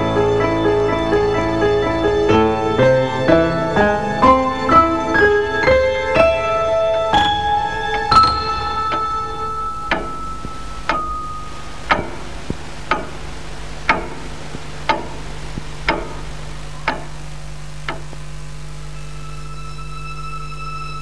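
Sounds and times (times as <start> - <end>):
low steady hum: 0.0 - 21.0
clock ticking: 7.2 - 18.3.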